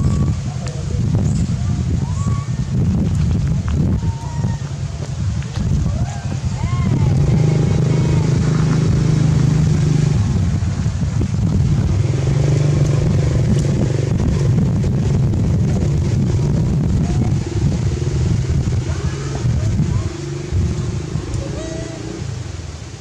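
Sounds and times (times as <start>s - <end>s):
engine running with low drone: 6.8s - 23.0s.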